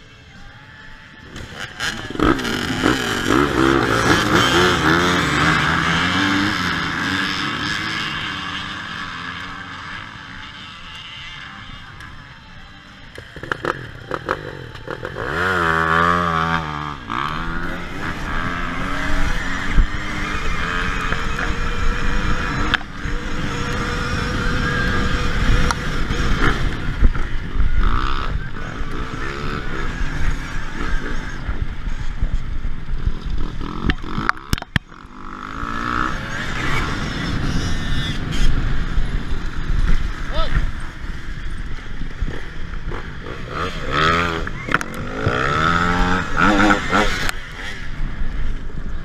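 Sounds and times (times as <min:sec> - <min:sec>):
dirtbike engines revving: 0:00.0 - 0:49.0.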